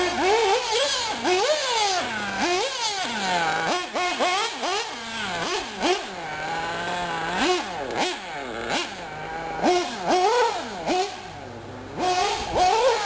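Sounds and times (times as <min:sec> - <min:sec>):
small nitro engines revving: 0:00.0 - 0:13.0.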